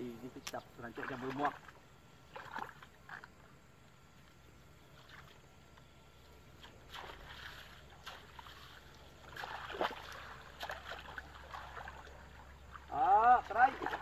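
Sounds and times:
small splashes: 0:00.4 - 0:03.5, 0:06.5 - 0:14.0
water sloshing and dripping: 0:00.4 - 0:04.2, 0:04.8 - 0:14.0.

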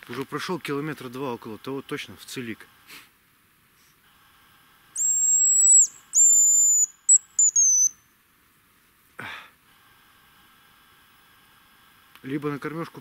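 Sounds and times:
high thin decoy whistle: 0:05.0 - 0:08.0.

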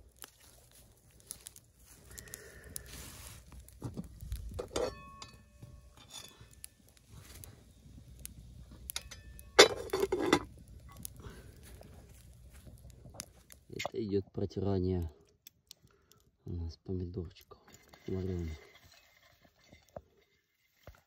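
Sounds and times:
pot lid clinking: 0:04.6 - 0:05.5, 0:09.0 - 0:10.4.

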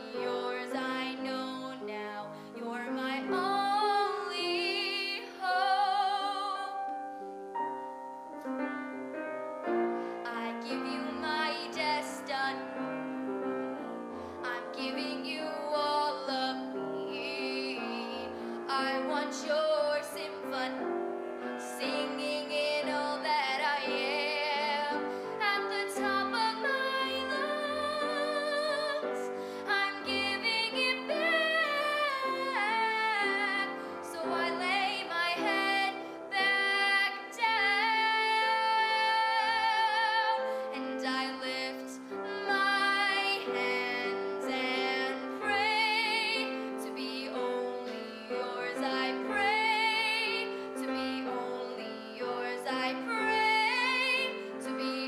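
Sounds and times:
woman singing: 0:00.0 - 0:07.2, 0:10.2 - 0:55.0
piano accompaniment: 0:00.0 - 0:55.0.

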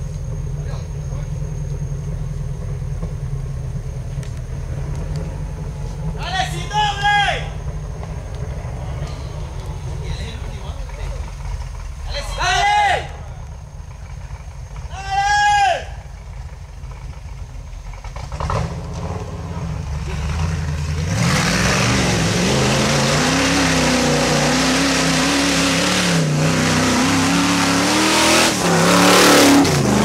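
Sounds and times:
wheels spinning in mud: 0:07.5 - 0:24.5
engine revving under load: 0:17.9 - 0:30.0.

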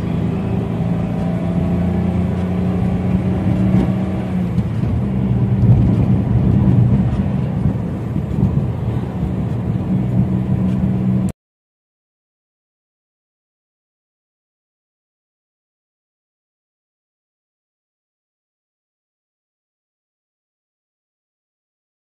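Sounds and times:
car engine hum: 0:00.0 - 0:11.3
road noise inside car: 0:00.0 - 0:11.4.

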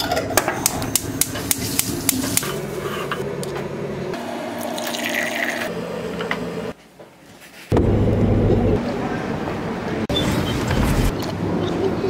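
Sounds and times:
hot water pouring into a cup: 0:04.6 - 0:05.7.

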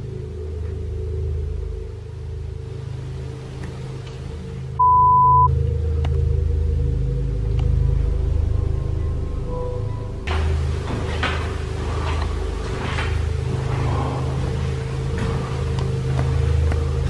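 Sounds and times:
dark droning background music: 0:00.0 - 0:17.0
high electronic beep: 0:04.8 - 0:05.5.

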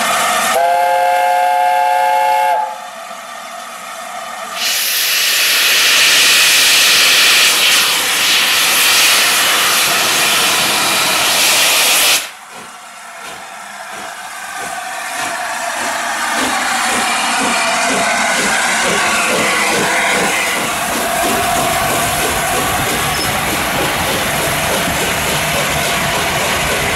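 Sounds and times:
steam blasting from locomotive: 0:00.0 - 0:03.2, 0:04.4 - 0:26.9
locomotive chuffing beat: 0:07.0 - 0:26.9.

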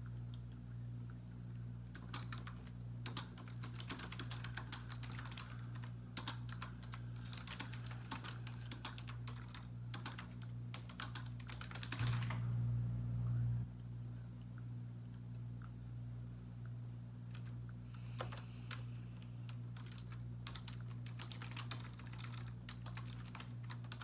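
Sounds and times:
low electrical hum: 0:00.0 - 0:24.0
computer keyboard typing: 0:01.9 - 0:12.4, 0:18.2 - 0:18.8, 0:19.5 - 0:24.0.

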